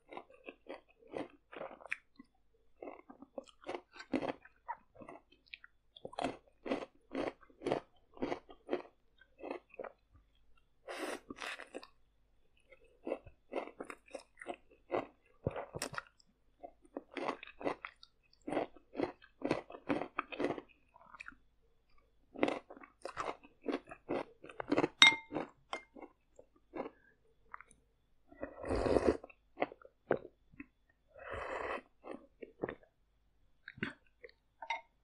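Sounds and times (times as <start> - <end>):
slurping soup: 10.9 - 11.9, 28.4 - 29.4, 31.1 - 32.8
sharp clink with ring: 25.0 - 25.3.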